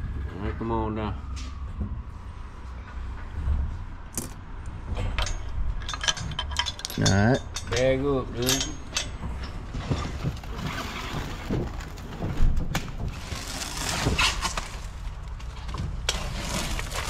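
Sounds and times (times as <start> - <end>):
plastic wrap rustling and crackling: 9.9 - 17.0.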